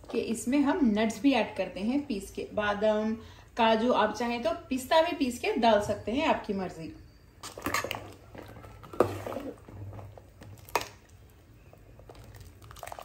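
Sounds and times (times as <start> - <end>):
ladle stirring soup: 7.4 - 13.0.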